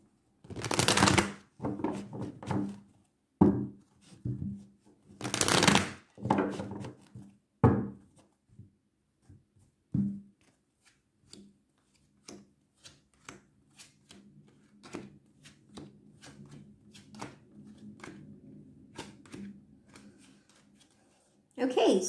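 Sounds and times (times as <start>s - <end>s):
cards shuffled and tapped: 0.5s - 2.3s, 5.2s - 7.3s, 10.3s - 18.3s, 18.9s - 21.0s.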